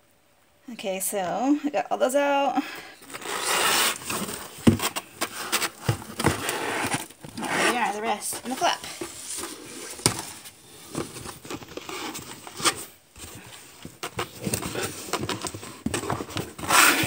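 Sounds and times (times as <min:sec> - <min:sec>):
cardboard flaps rustling: 0:03.0 - 0:17.0
cardboard box thump: 0:04.0 - 0:07.4, 0:08.3 - 0:11.6.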